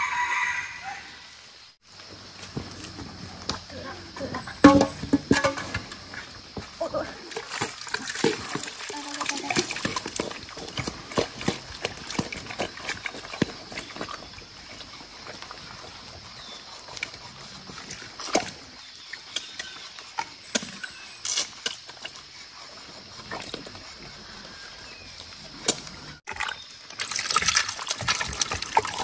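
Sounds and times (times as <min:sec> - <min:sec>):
sharp knocks: 0:04.6 - 0:05.9
boar eating wet feed: 0:07.2 - 0:19.9, 0:25.8 - 0:29.0.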